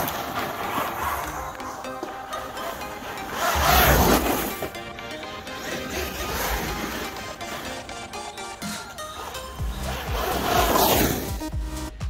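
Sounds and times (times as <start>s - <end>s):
rhythmic background music: 0.0s - 12.0s.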